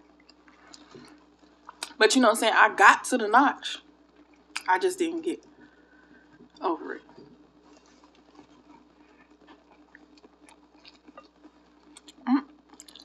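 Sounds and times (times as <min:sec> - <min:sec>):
faint steady hum: 0:00.0 - 0:13.0
person chewing: 0:00.2 - 0:01.9, 0:07.6 - 0:13.0.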